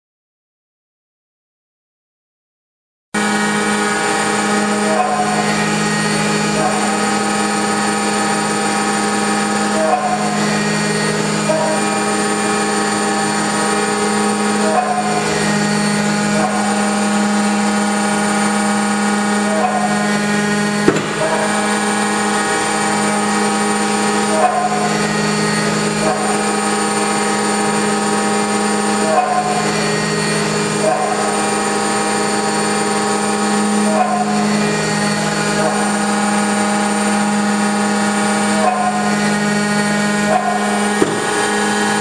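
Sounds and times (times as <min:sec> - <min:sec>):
hydraulic pump motor humming: 0:03.2 - 0:42.0
sharp knock: 0:20.9 - 0:21.6, 0:41.0 - 0:41.4.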